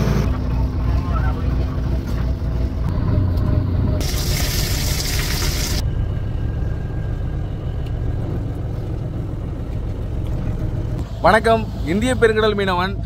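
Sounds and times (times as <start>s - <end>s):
low engine rumble: 0.0s - 13.0s
fish frying in hot oil: 4.0s - 5.8s.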